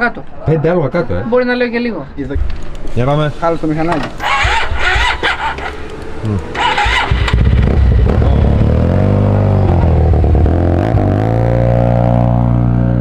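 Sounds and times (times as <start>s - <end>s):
scooter engine starting and idling: 3.9s - 10.5s.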